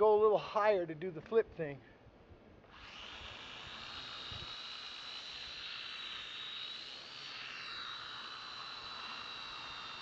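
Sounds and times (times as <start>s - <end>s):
quadcopter motors whining: 2.7s - 10.0s.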